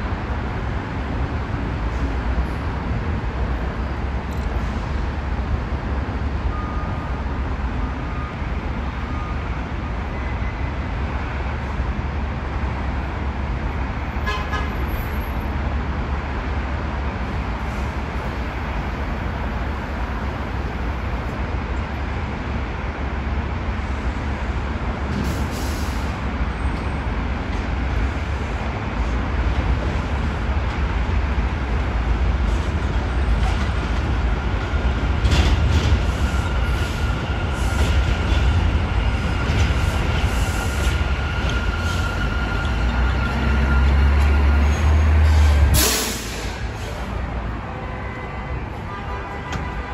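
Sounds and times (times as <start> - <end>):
train rumble: 0.0 - 49.9
high-pitched train squeal: 36.0 - 47.2.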